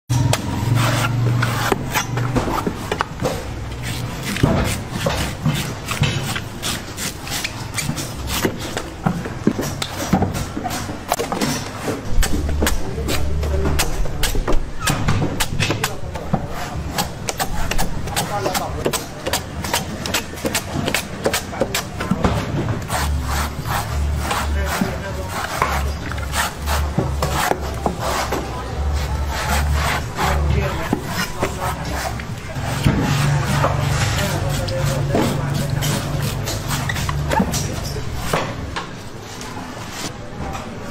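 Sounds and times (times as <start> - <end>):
knife chopping coconut husk: 0.2 - 8.9, 12.1 - 38.6
machete chopping coconut: 12.2 - 16.0, 16.9 - 23.2.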